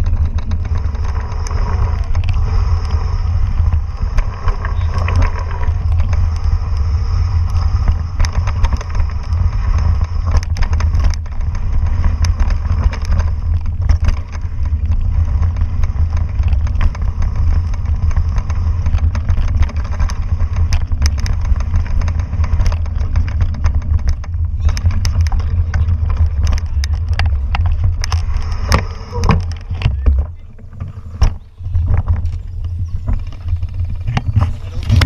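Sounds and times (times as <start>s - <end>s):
bike rattles and knocks: 0.0s - 35.0s
wind buffeting microphone: 0.0s - 35.0s.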